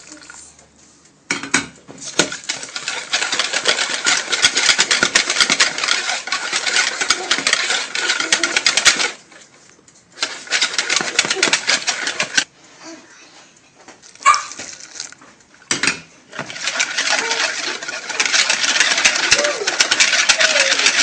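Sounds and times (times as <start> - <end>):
whisk rattling against bowl: 2.1 - 9.4, 10.2 - 12.5, 15.8 - 21.0.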